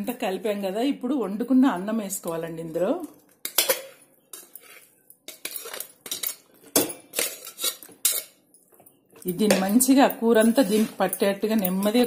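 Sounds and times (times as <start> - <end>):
metal clinking and scraping: 3.2 - 12.0.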